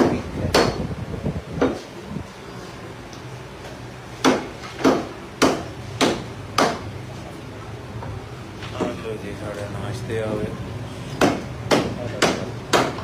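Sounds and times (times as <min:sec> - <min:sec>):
cleaver chopping meat and bone: 0:00.0 - 0:00.8, 0:04.2 - 0:06.9, 0:11.2 - 0:13.0.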